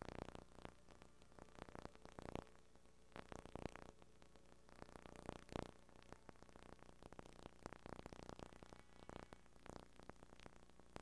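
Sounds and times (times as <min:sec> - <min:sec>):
faint static hiss: 0:00.0 - 0:11.0.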